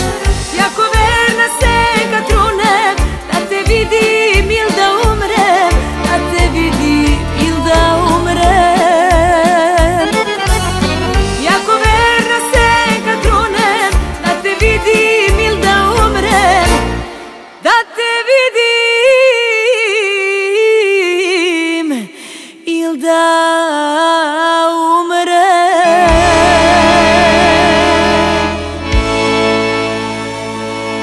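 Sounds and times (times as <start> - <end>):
folk band with bass: 0.0 - 17.2, 25.9 - 31.0
woman singing with vibrato: 0.0 - 28.7.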